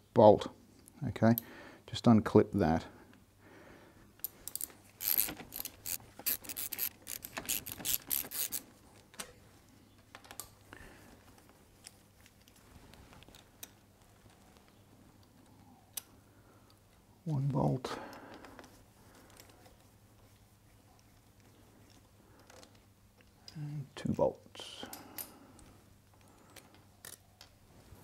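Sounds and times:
socket ratchet clicking: 4.2s - 8.6s.

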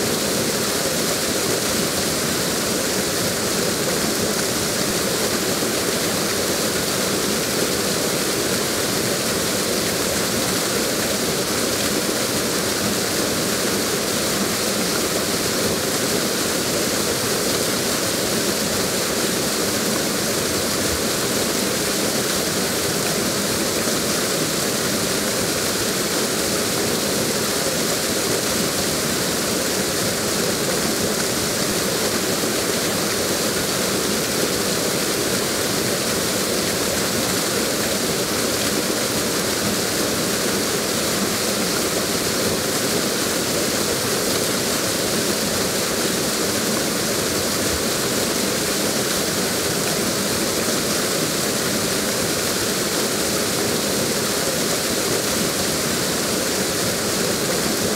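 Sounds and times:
waterfall rushing: 0.0s - 57.9s.

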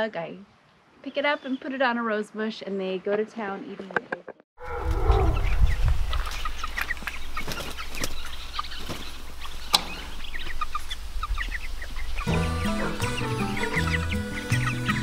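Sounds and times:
chicks peeping and clucking: 4.9s - 15.0s.

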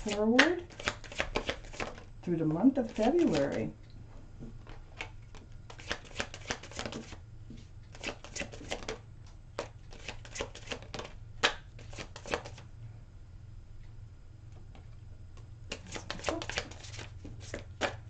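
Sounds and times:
cards being shuffled: 0.0s - 2.1s, 2.8s - 3.7s, 4.7s - 7.2s, 7.9s - 9.0s, 9.6s - 12.7s, 15.7s - 18.0s.

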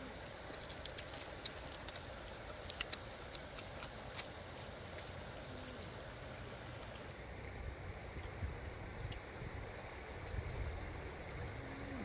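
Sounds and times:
mouth clicks and smacks: 0.2s - 6.0s
person chewing food: 0.2s - 6.0s.

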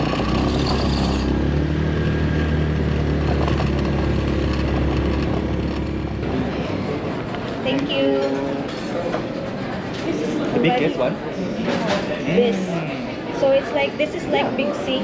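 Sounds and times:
vehicle engine running: 0.0s - 7.6s.

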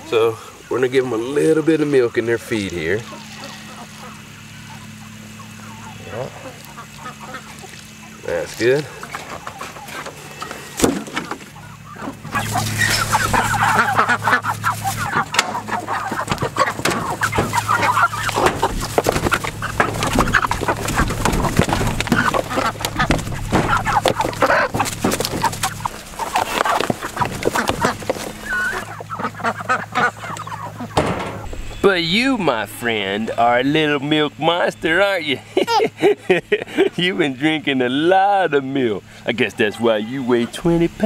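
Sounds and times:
chickens pecking and scuffling: 0.0s - 35.4s
chickens calling and squabbling: 0.0s - 41.0s
wings flapping: 8.8s - 32.5s.

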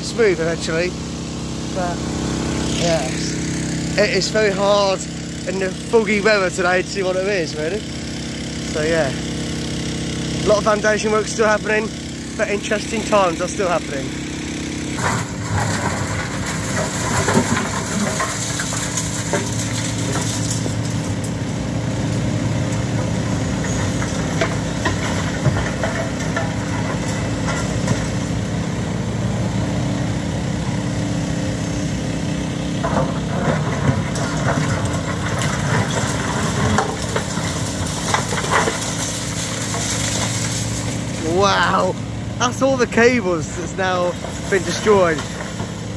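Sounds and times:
excavator diesel engine running: 0.0s - 45.9s
concrete rubble clattering in bucket: 10.5s - 28.5s, 32.8s - 41.9s, 42.5s - 45.9s.

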